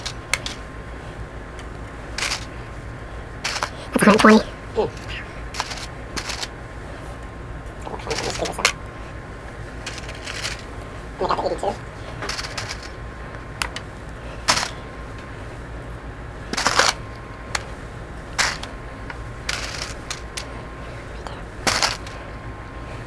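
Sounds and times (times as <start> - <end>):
paper clips clinking and rattling: 2.2 - 2.5, 3.4 - 6.5, 8.0 - 8.8, 9.8 - 10.7, 11.6 - 13.0, 14.4 - 14.8, 16.5 - 17.0, 18.4 - 18.7, 19.5 - 20.6, 21.6 - 22.2.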